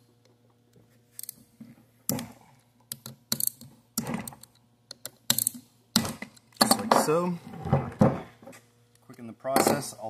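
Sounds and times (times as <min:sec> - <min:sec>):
ratchet wrench clicking: 0:02.9 - 0:03.6, 0:04.4 - 0:05.6.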